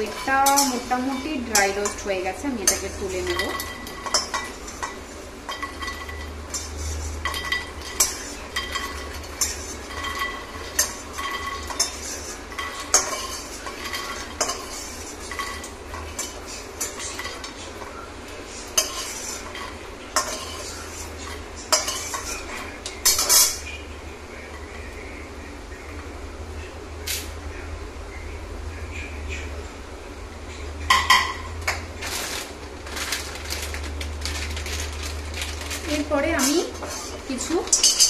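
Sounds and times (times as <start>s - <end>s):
metal spatula scraping metal pan: 18.7s - 23.6s, 35.8s - 38.0s.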